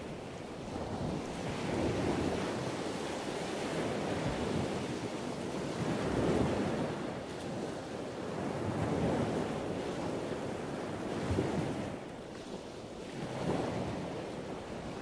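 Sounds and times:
sea wash: 0.0 - 15.0
wind: 0.0 - 15.0.

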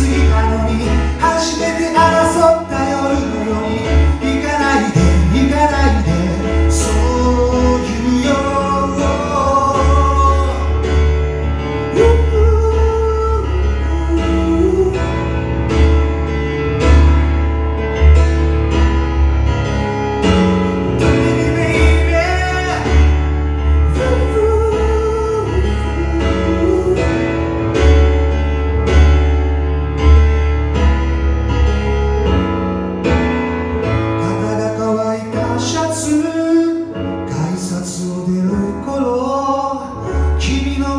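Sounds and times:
man singing: 0.0 - 15.4, 20.8 - 27.6, 34.2 - 40.9
digital piano chords: 0.0 - 40.9.

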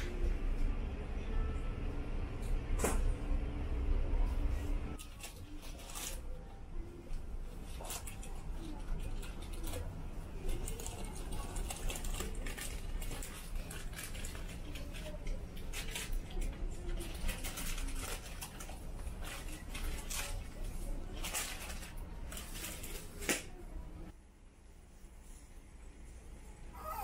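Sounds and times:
light clicks and clatters: 7.1 - 23.6.

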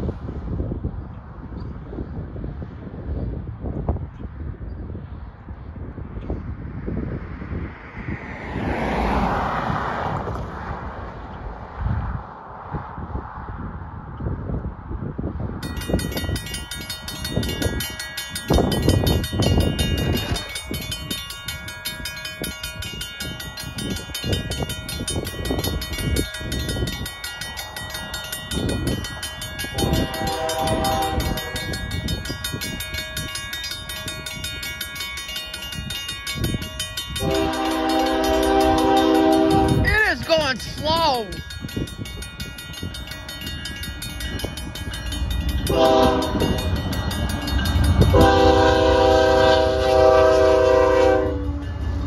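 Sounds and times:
railroad crossing bell ringing: 15.6 - 52.0
train horn: 29.7 - 31.9, 37.2 - 40.0, 45.7 - 46.8, 47.9 - 52.0.

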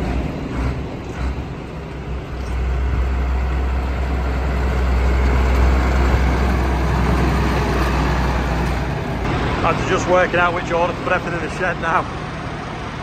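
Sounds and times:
tractor engine droning: 0.0 - 13.0.

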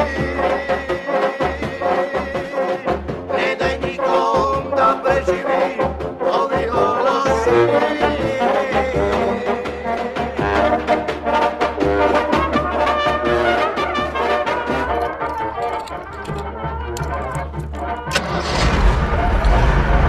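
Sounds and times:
brass music with steady beat: 0.0 - 18.6.

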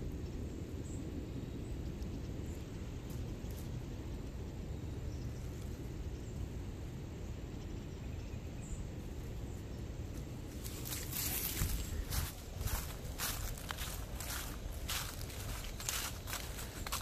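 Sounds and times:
low outdoor rumble: 0.0 - 17.0
dry leaves crackling and rustling: 10.1 - 17.0.

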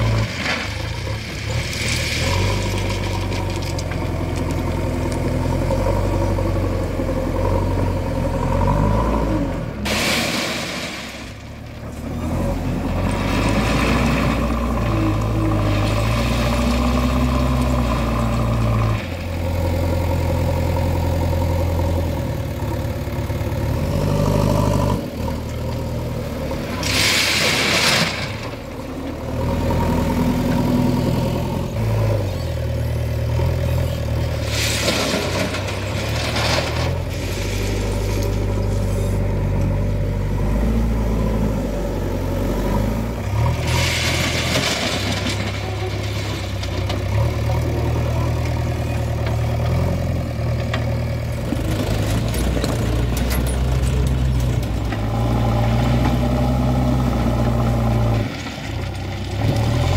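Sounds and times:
diesel engine revving: 0.0 - 59.9
crushed stone pouring: 0.2 - 5.4, 34.5 - 39.2.

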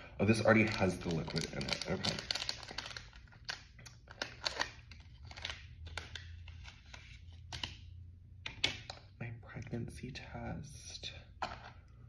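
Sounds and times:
wrapper crinkling: 0.3 - 7.2.

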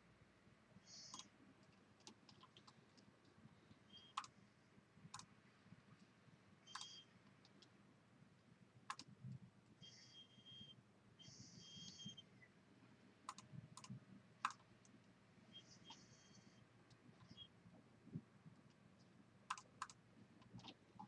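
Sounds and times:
computer mouse clicks: 1.0 - 3.4, 4.0 - 4.4, 5.1 - 5.3, 6.7 - 7.7, 8.9 - 9.4, 13.3 - 15.2, 18.6 - 21.0.

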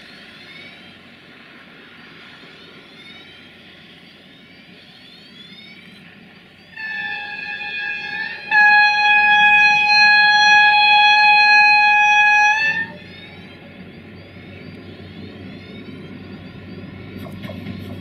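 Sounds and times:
diesel engine and train rumble: 0.0 - 18.0
locomotive horn blast: 6.8 - 13.2.

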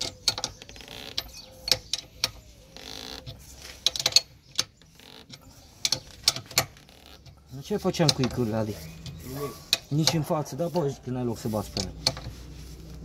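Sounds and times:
sharp metal clicks: 0.0 - 10.4
rasping metal scrape: 5.0 - 13.0.

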